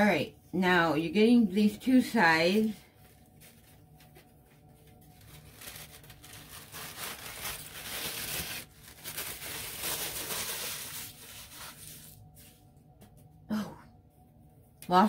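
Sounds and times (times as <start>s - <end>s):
packaging wrap crinkling: 2.5s - 12.7s.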